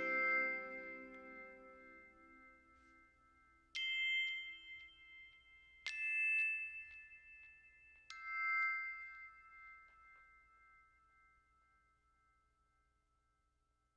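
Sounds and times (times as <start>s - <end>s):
bell-like chime strikes: 0.0s - 3.2s.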